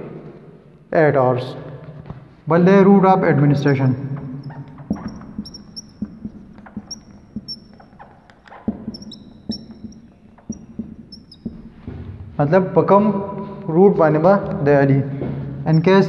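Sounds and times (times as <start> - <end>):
marker squeaking on whiteboard: 3.4 - 12.1
marker clicks: 4.4 - 11.6.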